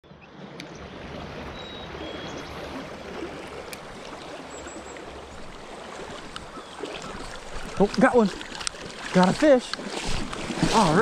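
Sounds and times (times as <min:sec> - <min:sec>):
faint ticks: 0:06.2 - 0:06.5.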